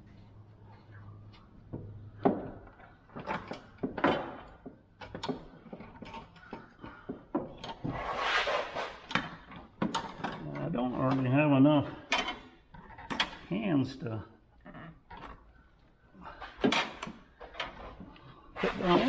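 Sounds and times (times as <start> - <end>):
rustling scrape: 7.9 - 9.1, 18.6 - 19.0
metal parts clicking and knocking: 9.1 - 11.3, 12.1 - 13.5.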